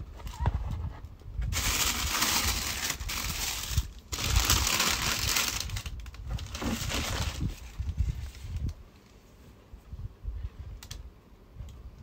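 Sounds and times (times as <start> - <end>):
paper rustling and crinkling: 0.0 - 9.2.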